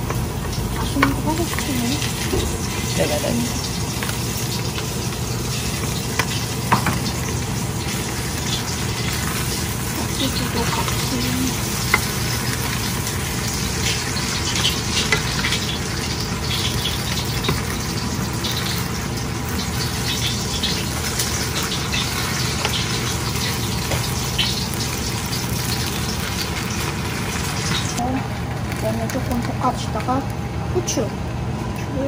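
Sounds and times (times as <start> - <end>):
rice sizzling in a hot pan: 0.0 - 31.0.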